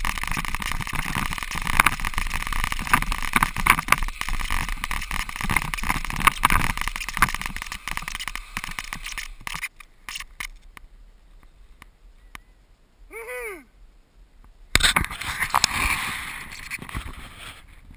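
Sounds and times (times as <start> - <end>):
bicycle tyres crunching snow: 0.0 - 10.5, 14.8 - 17.9.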